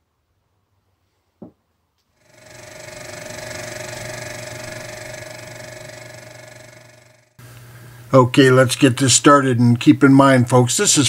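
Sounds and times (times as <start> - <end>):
machine hum with hiss: 2.2 - 8.3.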